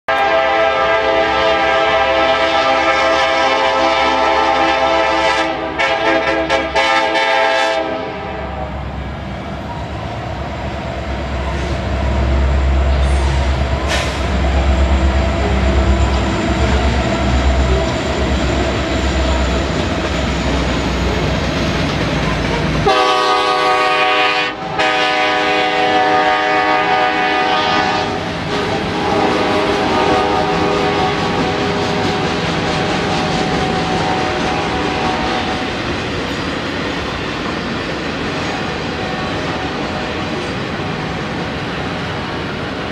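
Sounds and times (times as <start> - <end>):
locomotive air horn: 0.1 - 8.7, 22.8 - 35.7
diesel engines and wheels rumbling: 0.1 - 42.9
freight cars rolling: 8.6 - 23.4.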